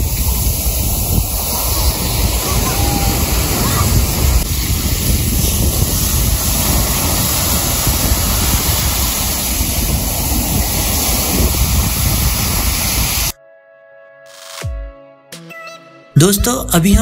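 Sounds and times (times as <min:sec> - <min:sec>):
surf breaking on beach: 0:00.0 - 0:13.4
wind rumbling on microphone: 0:00.0 - 0:13.4.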